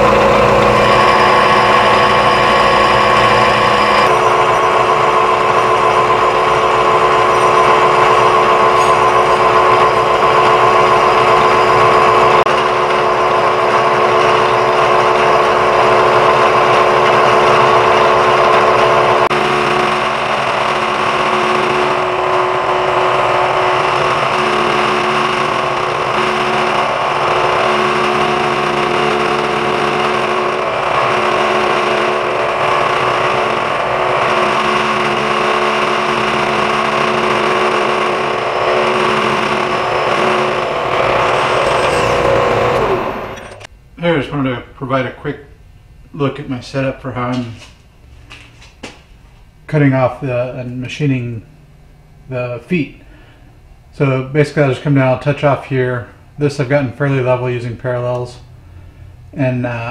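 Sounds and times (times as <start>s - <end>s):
milling machine cutting steel: 0.0s - 43.7s.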